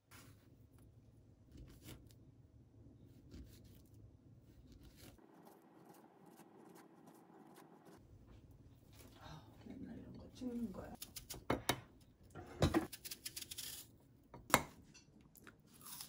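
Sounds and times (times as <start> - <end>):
banana peel tearing: 15.7 - 16.0.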